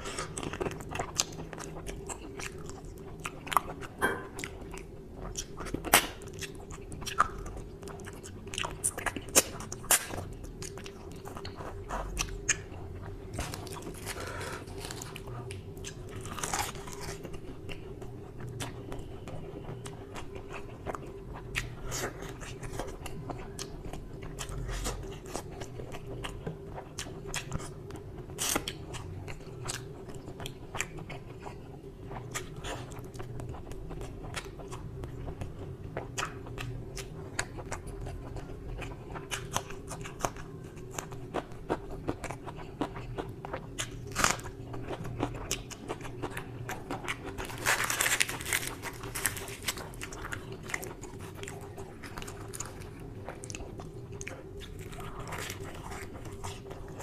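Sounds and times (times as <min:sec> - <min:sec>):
chewing with mouth clicks: 0:00.0 - 0:57.0
bread tearing crackle: 0:13.3 - 0:15.2, 0:47.3 - 0:53.0.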